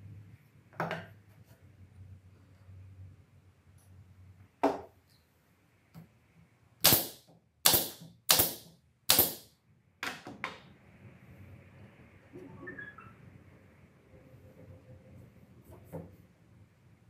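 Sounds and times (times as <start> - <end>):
nail gun firing: 6.8 - 9.5.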